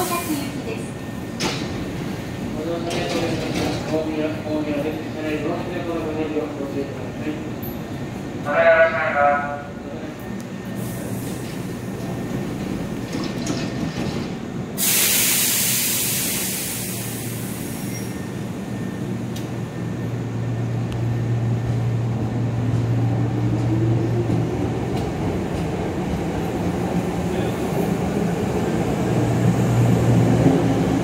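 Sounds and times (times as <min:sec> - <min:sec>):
train hum: 0:00.0 - 0:31.0
loud air hiss: 0:14.7 - 0:18.1.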